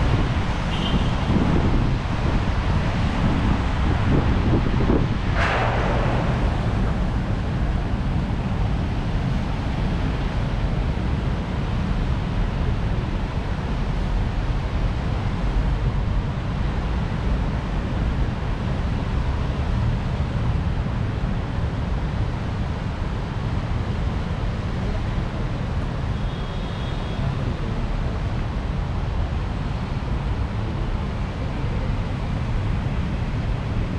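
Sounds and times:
wind rumbling on microphone: 0:00.0 - 0:25.8.

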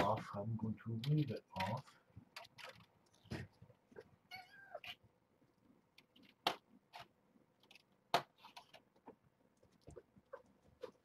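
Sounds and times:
kittens scuffling: 0:00.0 - 0:11.0
kittens mewing: 0:03.9 - 0:05.0.

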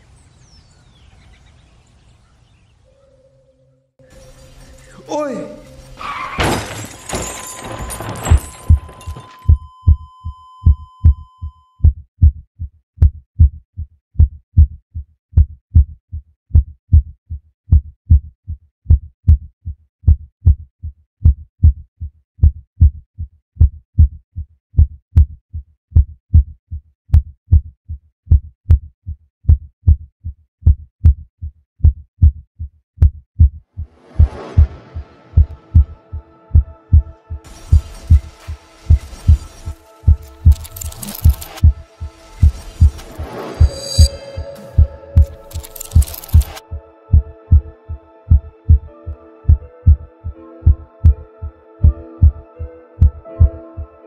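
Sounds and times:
high ringing tone: 0:04.0 - 0:11.8, 0:42.5 - 0:46.7
heartbeat thumps: 0:09.5 - 0:28.9, 0:29.5 - 0:40.7, 0:41.3 - 0:43.0, 0:46.0 - 0:48.9, 0:49.5 - 0:52.4, 0:53.0 - 0:53.9.

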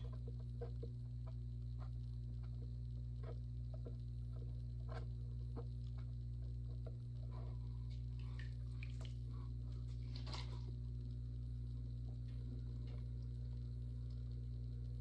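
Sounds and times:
pottery wheel motor humming: 0:00.0 - 0:15.0
wet clay dabs and drips: 0:07.9 - 0:10.6.

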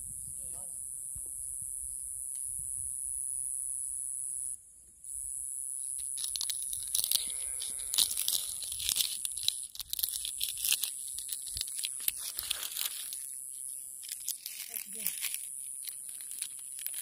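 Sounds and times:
dry shell crackling in fingers: 0:05.8 - 0:17.0.

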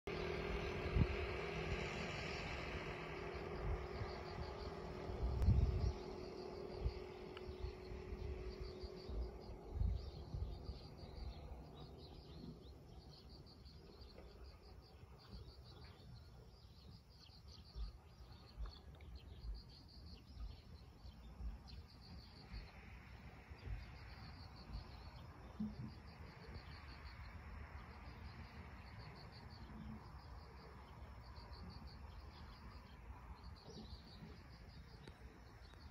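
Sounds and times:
high pulsed chirping: 0:00.1 - 0:14.7.

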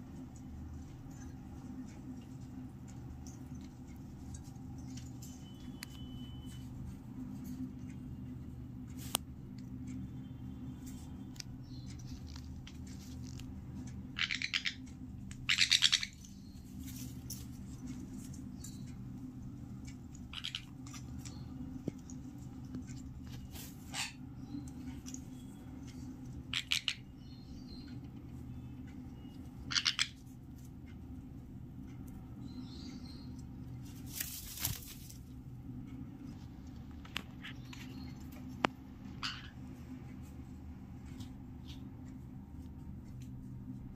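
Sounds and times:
steady low hum: 0:00.0 - 0:43.9
parrots chirping: 0:13.3 - 0:18.9, 0:20.0 - 0:21.7, 0:23.6 - 0:30.4, 0:37.4 - 0:39.8.

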